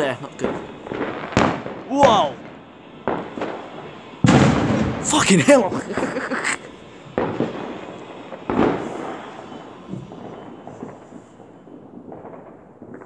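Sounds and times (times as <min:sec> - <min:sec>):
fireworks bangs with echo: 0:00.0 - 0:13.0
faint firework thump: 0:06.9 - 0:11.4.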